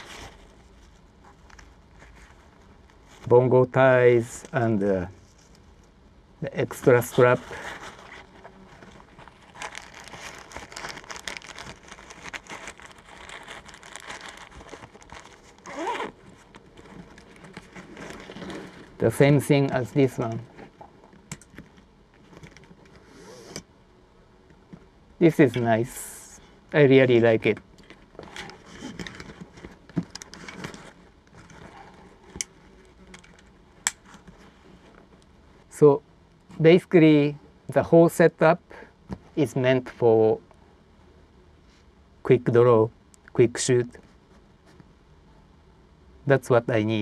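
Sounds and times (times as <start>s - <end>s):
fabric rustling: 0.0s - 3.3s, 7.1s - 21.0s.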